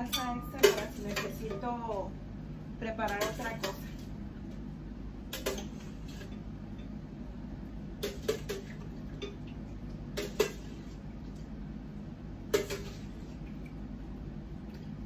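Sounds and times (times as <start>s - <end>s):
metal spoon clinking against pot: 0.0s - 1.7s
steady low hum: 0.0s - 15.0s.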